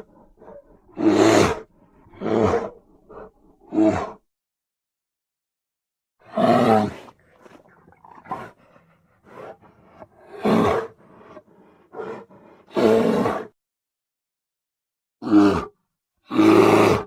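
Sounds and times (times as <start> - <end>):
creature grunts and growls: 0.0 - 4.2, 15.2 - 17.0.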